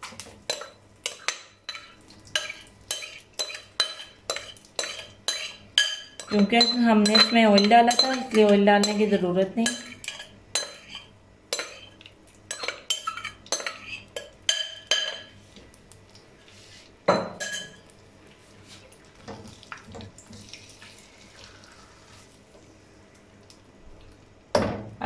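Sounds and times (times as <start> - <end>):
metal spoon clinking on glass bowl: 0.5 - 11.9, 12.5 - 15.3, 17.1 - 17.8
spatula scraping in pan: 0.5 - 15.4.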